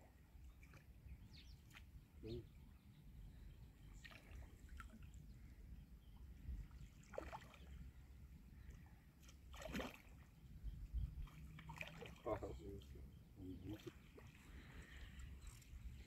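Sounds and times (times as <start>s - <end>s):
fish splashing in water: 7.0s - 7.7s, 9.4s - 10.3s, 11.2s - 12.3s.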